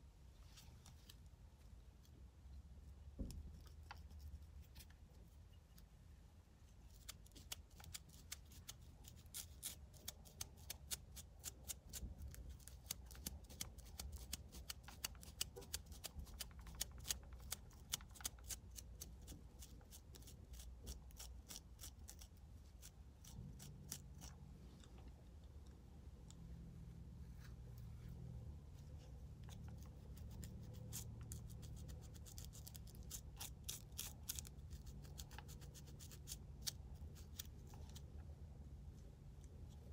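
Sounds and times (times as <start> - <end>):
brush scratching scalp: 29.4 - 38.0.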